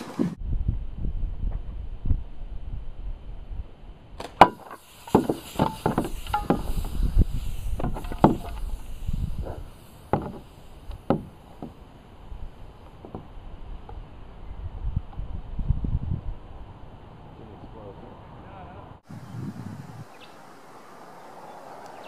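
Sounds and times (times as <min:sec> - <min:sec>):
air hissing from bottle: 0:04.6 - 0:11.6.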